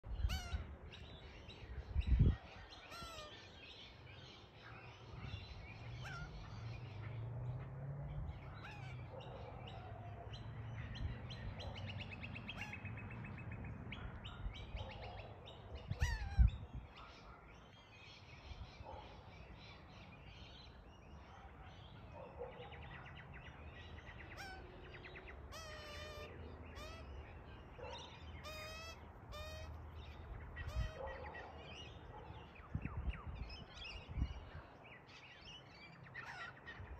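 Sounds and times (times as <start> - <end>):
magpie calling: 25.5 - 27.3, 28.3 - 29.8.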